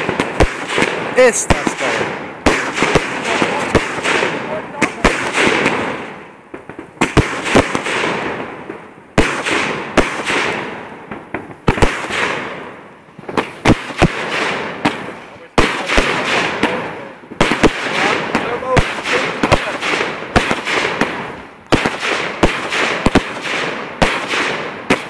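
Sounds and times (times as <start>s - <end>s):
fireworks bangs: 0.0s - 25.0s.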